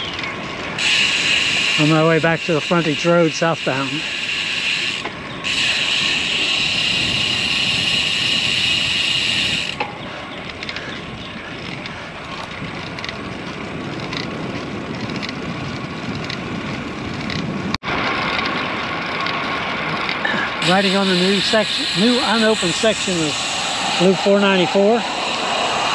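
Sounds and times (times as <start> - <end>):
bike tyre noise: 0.0 - 25.9
steady high buzz: 0.5 - 10.3, 19.2 - 25.9
wind on microphone: 5.2 - 17.8, 19.8 - 25.9.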